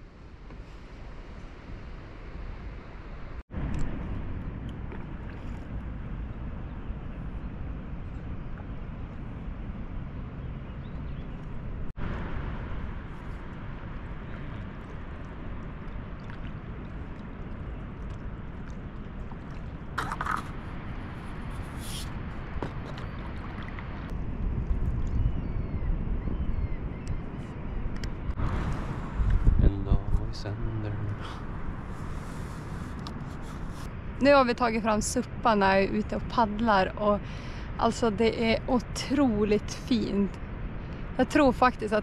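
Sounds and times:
low rumbling outdoor noise: 0.0s - 42.0s.

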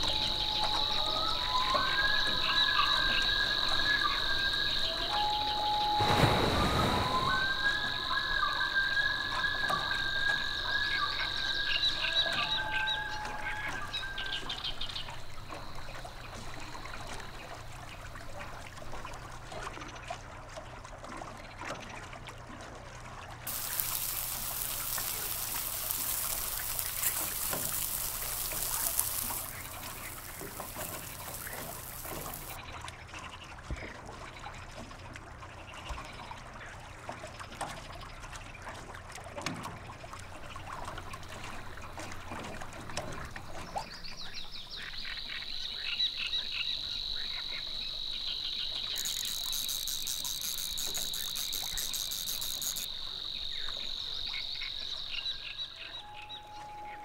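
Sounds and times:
high insect buzz: 0.0s - 18.5s, 23.5s - 32.6s, 45.3s - 55.9s
frogs and insects trilling: 0.0s - 20.0s, 23.5s - 32.6s, 40.1s - 57.0s
meat sizzling on a grill: 23.5s - 32.6s, 49.0s - 52.9s
small clicks: 23.5s - 32.6s, 48.8s - 52.9s.

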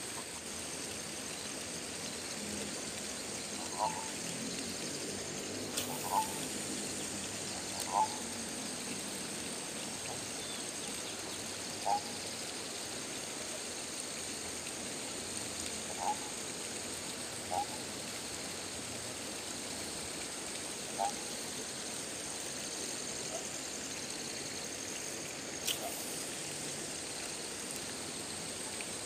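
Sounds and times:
steady high hiss: 0.0s - 29.0s
short animal calls: 3.7s - 4.1s, 5.8s - 6.4s.

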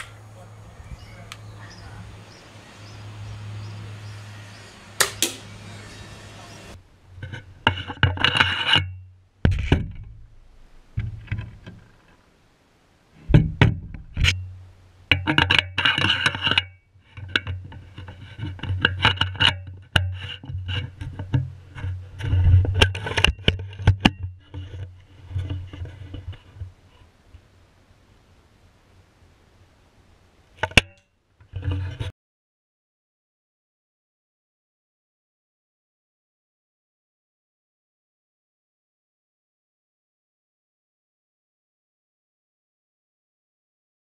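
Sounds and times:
air rifle shot clicks: 5.0s - 5.5s.

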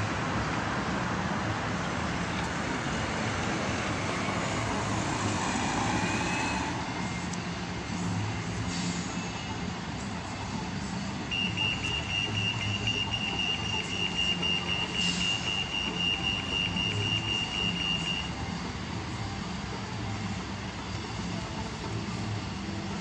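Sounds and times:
idling vehicle engines: 0.0s - 23.0s
crossing signal rapid beeping: 10.6s - 21.7s.

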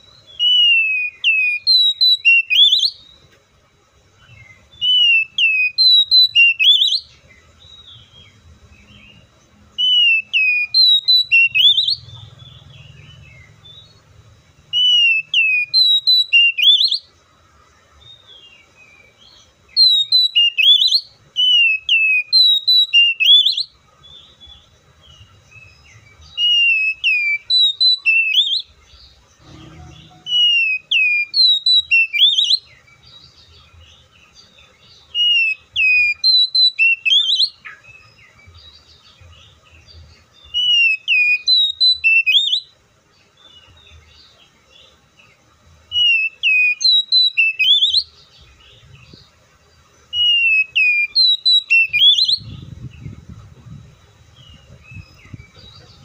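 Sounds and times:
bird singing whistled phrases: 0.0s - 3.3s, 4.2s - 14.1s, 14.7s - 17.1s, 18.8s - 23.8s, 25.6s - 28.8s, 29.4s - 33.0s, 35.1s - 38.3s, 40.4s - 42.7s, 45.9s - 48.1s, 50.1s - 53.0s.

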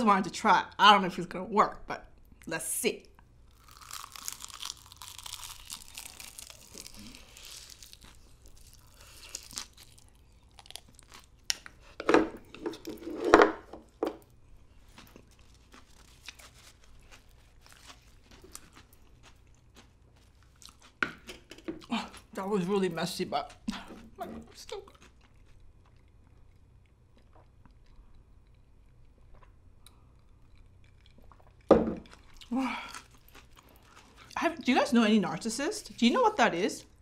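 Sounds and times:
seaweed crackling and tearing: 3.6s - 11.2s
chewing with wet mouth clicks: 24.7s - 34.4s.

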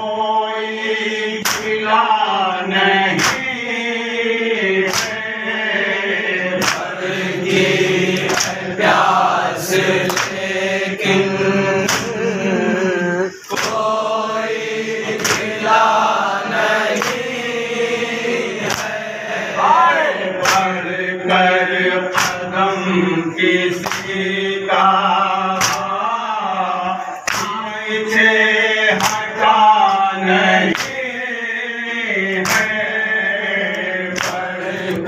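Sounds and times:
men chanting together: 0.0s - 35.0s
hands slapping chests: 1.4s - 1.8s, 3.1s - 3.5s, 4.8s - 5.3s, 6.4s - 9.2s, 9.8s - 10.4s, 11.8s - 12.2s, 13.4s - 17.4s, 18.6s - 20.8s, 22.1s - 22.5s, 23.7s - 24.2s, 25.6s - 26.0s, 27.2s - 27.6s, 29.0s - 30.0s, 30.7s - 31.1s, 32.3s - 32.8s, 34.1s - 34.5s.

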